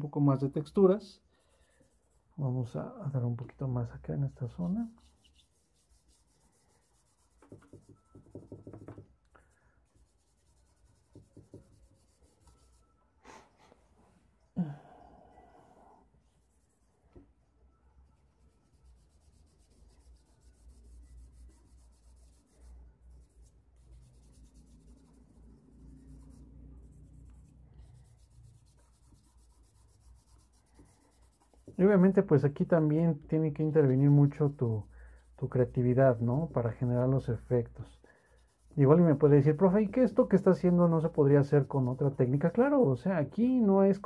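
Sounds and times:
fingers rubbing charcoal on paper: 0:04.6 - 0:09.0, 0:10.0 - 0:12.8, 0:18.5 - 0:25.4, 0:26.0 - 0:32.1, 0:33.6 - 0:42.9.

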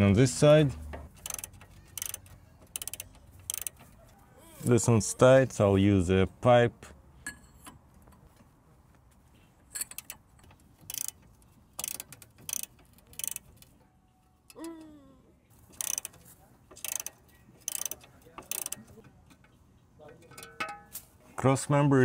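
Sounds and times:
socket ratchet clicking: 0:01.1 - 0:03.9, 0:09.7 - 0:13.8, 0:15.7 - 0:19.5.

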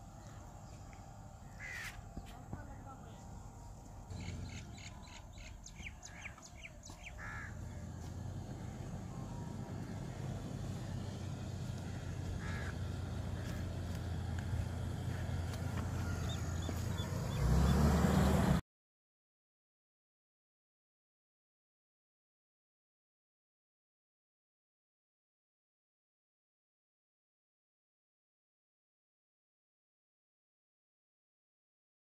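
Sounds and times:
car engine driving on sand: 0:00.0 - 0:18.6
small birds chirping: 0:00.2 - 0:18.5
crow cawing: 0:01.5 - 0:02.0, 0:07.0 - 0:07.9, 0:11.8 - 0:13.6, 0:15.8 - 0:16.8.

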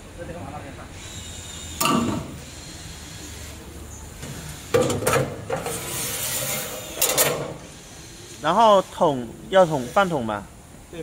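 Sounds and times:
knocks and scraping: 0:04.2 - 0:07.5.

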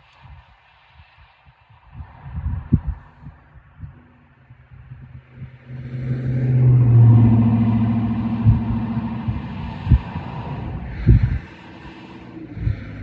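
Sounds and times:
faint low thumps: 0:05.0 - 0:11.5
vehicle passing by: 0:05.0 - 0:13.0.

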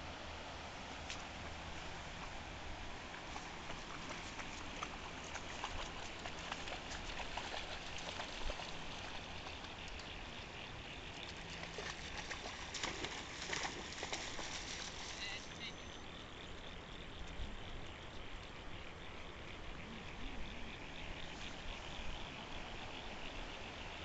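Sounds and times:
small crackles and splashes: 0:03.0 - 0:15.4.

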